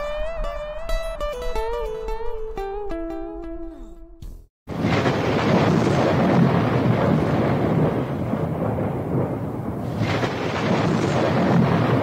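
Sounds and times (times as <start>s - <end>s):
rolling thunder rumble: 4.7s - 12.0s
steady rain: 4.7s - 12.0s.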